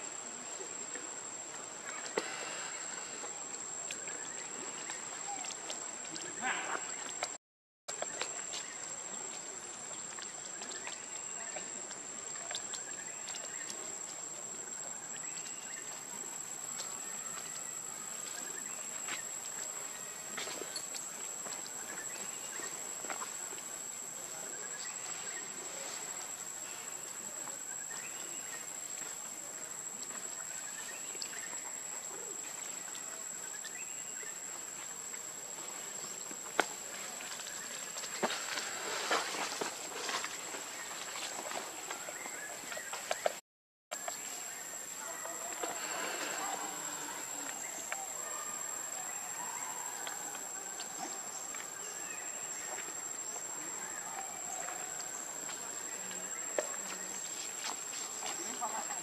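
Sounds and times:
rustles and clicks in leaf litter: 8.0s - 43.4s.

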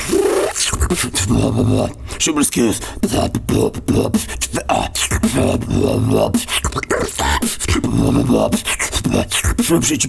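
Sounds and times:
hip-hop beat: 0.0s - 10.0s
turntable scratching vocal samples: 0.0s - 10.0s.

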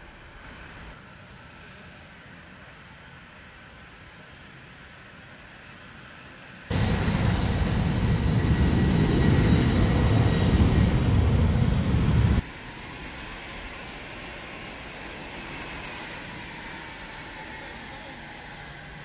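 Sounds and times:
faint steady rumble: 6.7s - 12.5s
jet engine roar: 6.7s - 19.0s.

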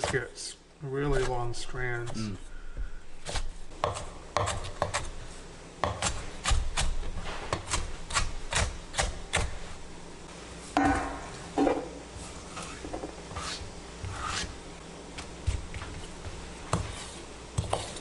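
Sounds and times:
knife chopping on cutting board: 3.2s - 5.1s, 5.8s - 9.5s.

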